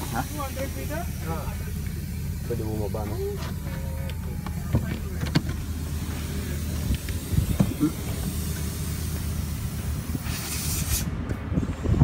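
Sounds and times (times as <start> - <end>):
car engine idling: 0.0 - 12.0
knocks and clunks: 3.4 - 5.7, 6.9 - 7.8.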